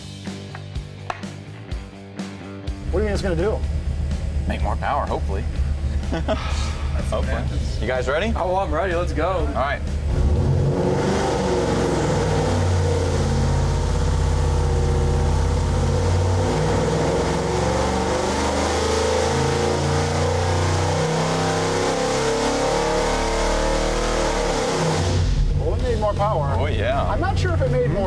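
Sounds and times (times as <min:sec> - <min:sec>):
engine running at full load: 0:03.0 - 0:28.0.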